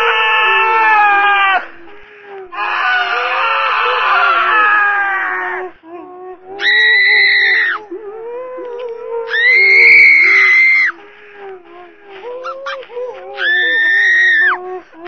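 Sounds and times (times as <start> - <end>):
voices wailing and sobbing: 0.0 - 15.0
high-pitched screams: 2.5 - 5.6, 6.6 - 7.8, 9.3 - 11.0, 12.4 - 14.6.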